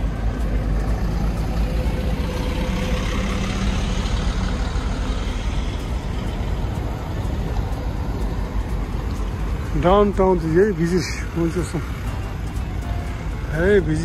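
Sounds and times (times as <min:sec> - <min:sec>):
road noise: 0:00.0 - 0:14.0
vehicle engine rumbling: 0:00.0 - 0:14.0.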